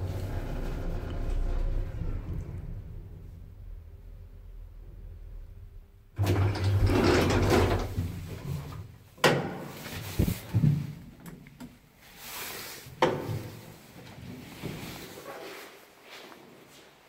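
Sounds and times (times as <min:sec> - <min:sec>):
lift doors sliding with motor hum: 0:00.0 - 0:08.9.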